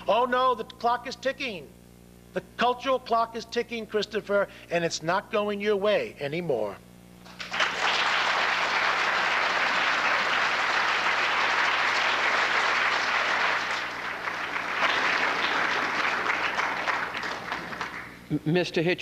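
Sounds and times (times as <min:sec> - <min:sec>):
audience applauding: 0:07.3 - 0:18.2.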